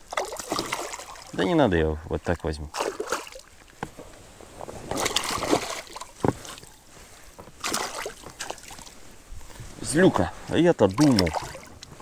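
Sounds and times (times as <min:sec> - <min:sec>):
fish splashing in water: 0:00.0 - 0:01.4, 0:02.7 - 0:03.5, 0:04.9 - 0:06.6, 0:07.6 - 0:08.9, 0:11.0 - 0:11.8.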